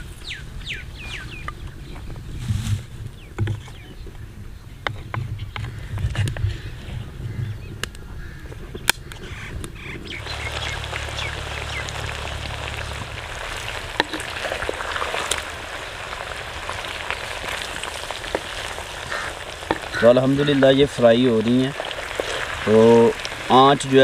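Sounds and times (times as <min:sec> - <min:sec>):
frying sizzle: 0:09.8 - 0:24.0.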